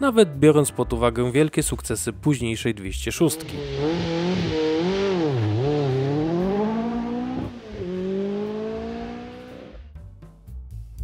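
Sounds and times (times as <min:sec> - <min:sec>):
car engine revving and accelerating: 0:03.2 - 0:09.8.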